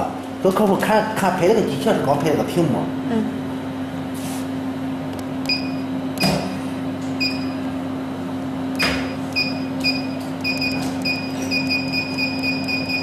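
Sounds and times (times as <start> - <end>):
machine humming: 0.0 - 13.0
touchscreen electronic beeps: 9.4 - 13.0.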